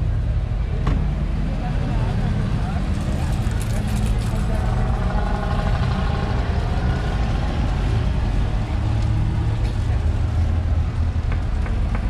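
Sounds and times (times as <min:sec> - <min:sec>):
engine rumbling: 0:00.0 - 0:12.0.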